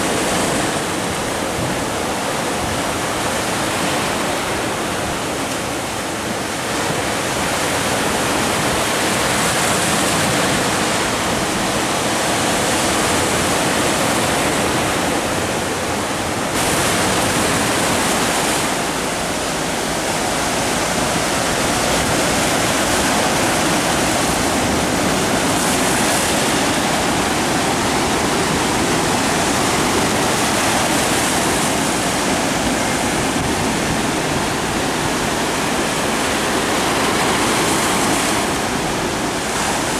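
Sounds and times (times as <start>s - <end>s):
sea surf breaking on rocks: 0.0s - 39.9s.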